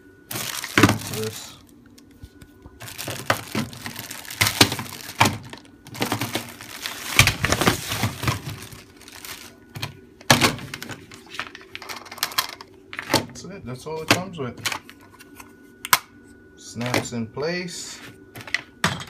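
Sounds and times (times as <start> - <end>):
plastic bag crinkling: 0.3 - 1.8, 2.7 - 9.9.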